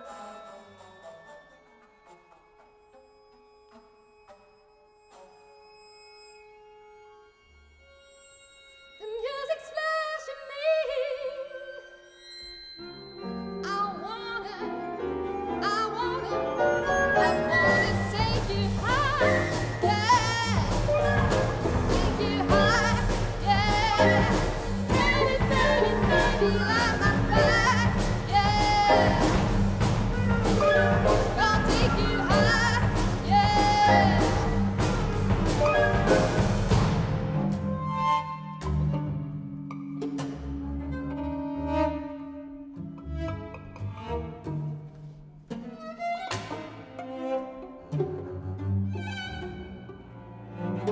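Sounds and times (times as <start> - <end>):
soprano singing with vibrato: 9.0 - 11.8, 13.6 - 29.5, 30.6 - 34.6
chamber ensemble with piano: 11.9 - 50.9
percussive strikes: 18.3 - 37.9.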